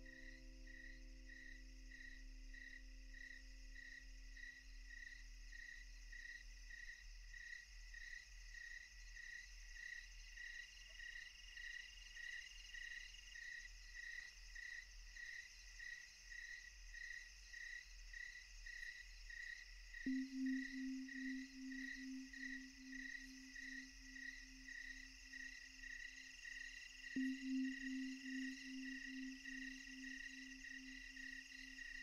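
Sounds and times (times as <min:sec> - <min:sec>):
crickets chirping: 0:00.0 - 0:32.0
low bell-like tone: 0:27.2 - 0:31.3.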